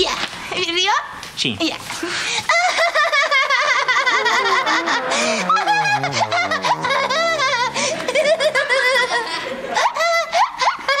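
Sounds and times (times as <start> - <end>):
woman laughing: 2.5 - 11.0.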